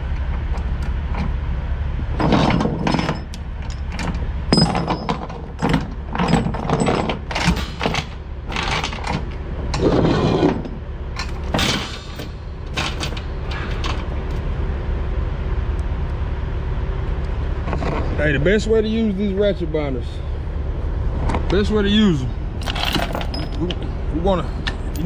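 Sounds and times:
steady low rumble: 0:00.0 - 0:25.0
chain scraping rattle: 0:02.2 - 0:14.4, 0:22.5 - 0:25.0
steel chains clanking: 0:02.2 - 0:14.4, 0:22.6 - 0:25.0.

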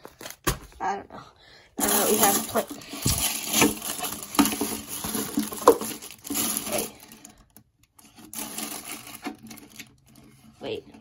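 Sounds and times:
packaging crinkling: 0:01.8 - 0:07.4, 0:08.2 - 0:10.0.

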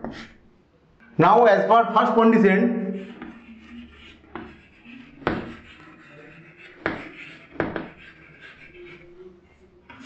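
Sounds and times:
chalk scratching: 0:00.0 - 0:00.4, 0:02.8 - 0:10.0
chalk tapping on blackboard: 0:00.0 - 0:00.4, 0:03.0 - 0:09.2.

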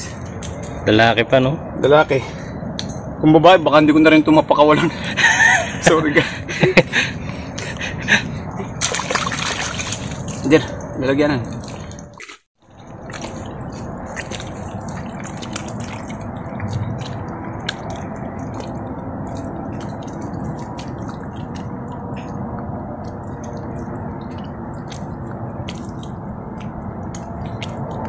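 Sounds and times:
mud squelching and sucking: 0:07.2 - 0:28.0.

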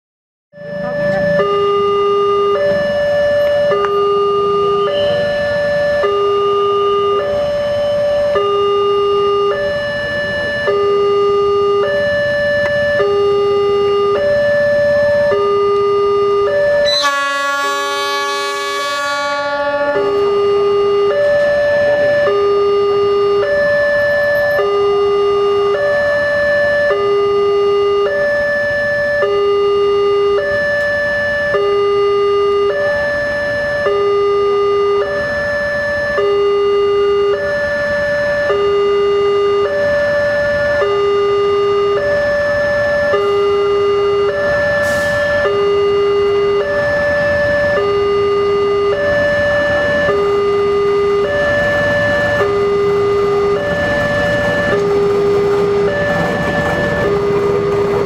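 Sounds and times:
two-tone crossing alarm: 0:00.5 - 0:58.0
locomotive horn blast: 0:12.6 - 0:58.0.

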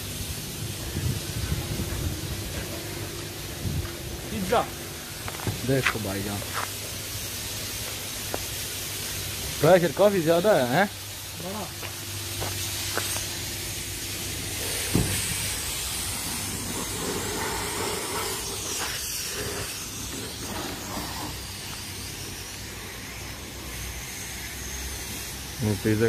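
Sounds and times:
pressure washer spraying water: 0:00.0 - 0:26.0
thump: 0:14.9 - 0:15.3.

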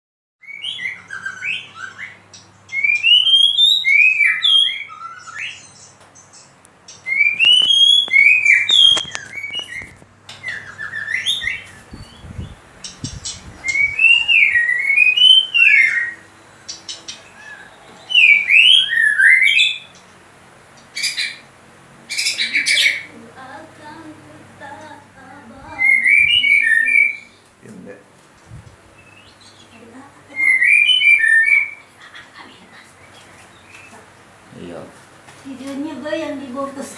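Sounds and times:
bird singing whistles: 0:00.4 - 0:05.9, 0:06.9 - 0:09.9, 0:10.5 - 0:16.2, 0:16.8 - 0:19.9, 0:25.8 - 0:27.4, 0:30.4 - 0:31.8
fast harsh bird notes: 0:00.5 - 0:23.1.

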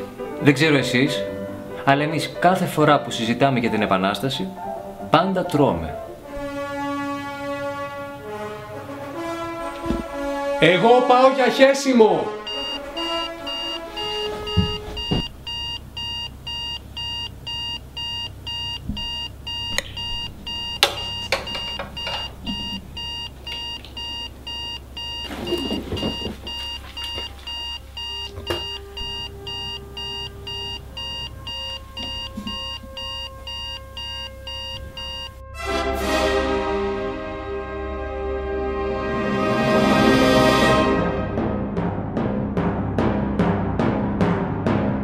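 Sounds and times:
music: 0:00.0 - 0:25.2, 0:26.0 - 0:45.0
electronic alarm clock beeping: 0:12.5 - 0:35.4
knocks: 0:14.5 - 0:15.4.

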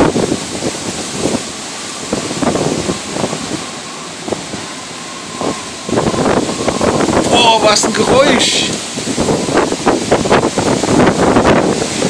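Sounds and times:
storm wind gusting through trees: 0:00.0 - 0:12.0
wind buffeting microphone: 0:00.0 - 0:12.0
faint steady whistling tone: 0:03.5 - 0:07.1.

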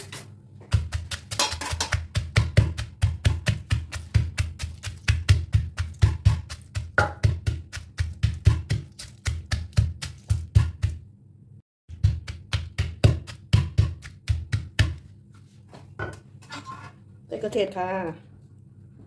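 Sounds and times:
wooden pestle pounding in mortar: 0:00.7 - 0:11.0, 0:11.9 - 0:15.0.

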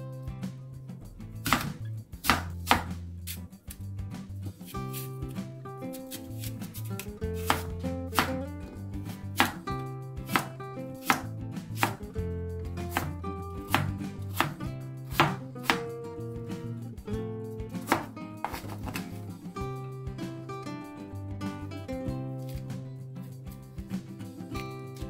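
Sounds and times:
soft background music: 0:00.0 - 0:25.0
knife chopping on plastic board: 0:01.4 - 0:03.0, 0:04.7 - 0:08.4, 0:09.4 - 0:09.6, 0:10.3 - 0:12.0, 0:12.9 - 0:15.9, 0:17.8 - 0:19.2.

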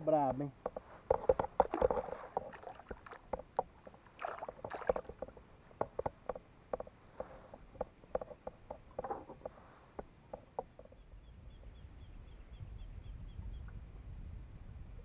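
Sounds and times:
gear knocking on plastic kayak: 0:00.6 - 0:11.0.

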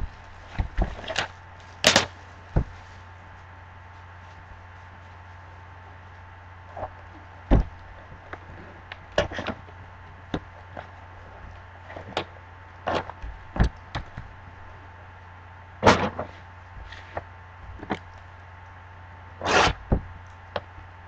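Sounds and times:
loud thuds: 0:00.0 - 0:02.9, 0:07.5 - 0:07.9.

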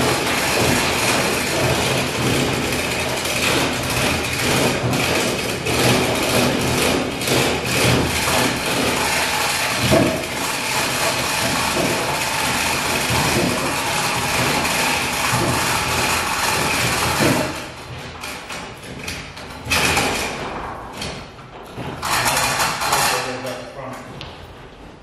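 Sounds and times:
knocks: 0:09.8 - 0:23.1.

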